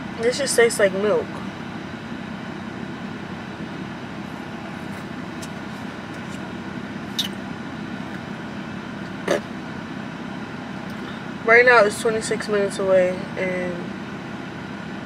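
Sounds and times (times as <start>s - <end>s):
car engine hum inside cabin: 0.0s - 15.0s.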